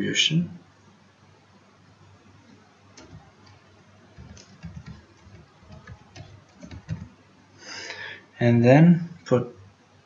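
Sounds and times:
keyboard keys clicking: 0:03.0 - 0:03.6, 0:04.2 - 0:07.1.

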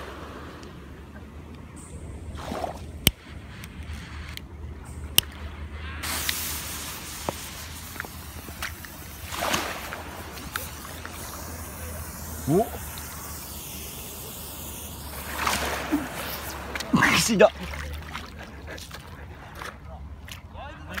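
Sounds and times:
small waves lapping: 0:00.0 - 0:04.4, 0:05.2 - 0:21.0
firework hissing: 0:06.0 - 0:17.4.

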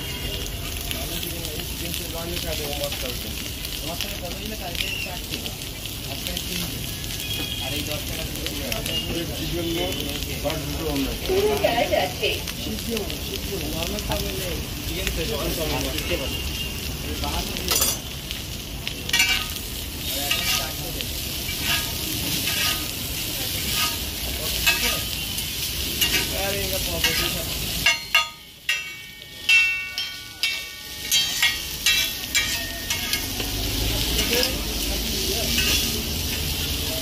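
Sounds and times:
noodles sizzling on a griddle: 0:00.0 - 0:37.0
metal spatulas scraping griddle: 0:20.3 - 0:20.8, 0:21.5 - 0:25.1, 0:26.0 - 0:28.9, 0:30.4 - 0:33.4, 0:35.5 - 0:36.0.

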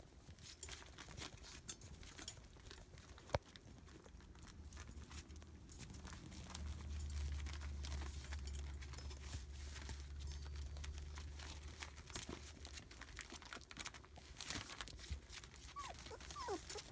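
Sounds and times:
paper crinkling under puppy paws: 0:00.0 - 0:16.9.

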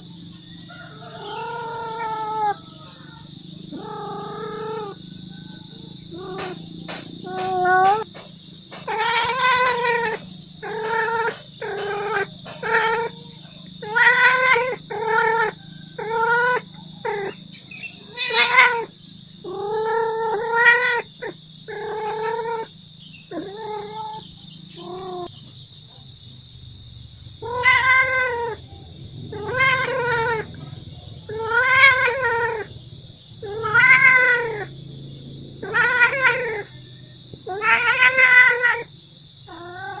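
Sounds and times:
steady high-pitched whine: 0:00.0 - 0:08.9, 0:34.6 - 0:35.7
cat yowling: 0:00.5 - 0:22.7, 0:23.3 - 0:25.4, 0:27.4 - 0:32.8, 0:33.4 - 0:40.0.

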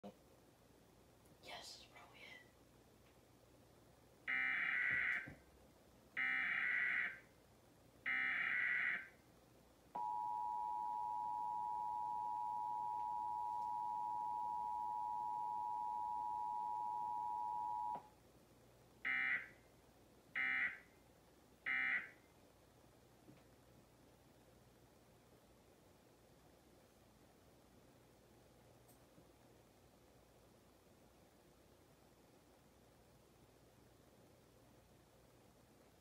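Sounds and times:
two-tone alert signal: 0:10.0 - 0:18.0.

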